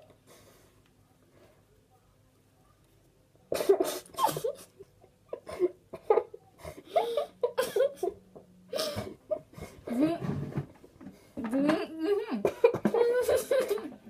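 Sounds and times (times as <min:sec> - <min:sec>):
girls coughing: 0:03.5 - 0:04.7, 0:12.3 - 0:14.0
girls laughing: 0:03.5 - 0:08.2, 0:12.0 - 0:14.0.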